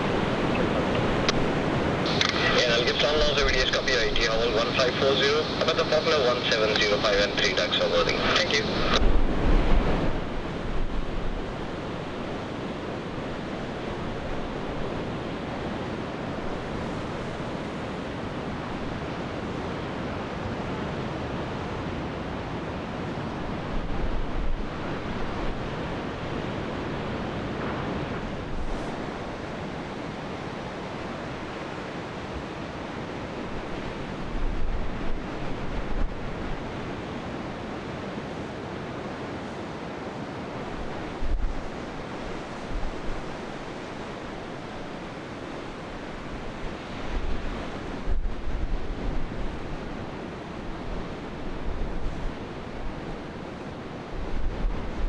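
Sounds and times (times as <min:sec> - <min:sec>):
sea surf breaking on shore: 0:00.0 - 0:55.0
wind buffeting microphone: 0:07.3 - 0:55.0.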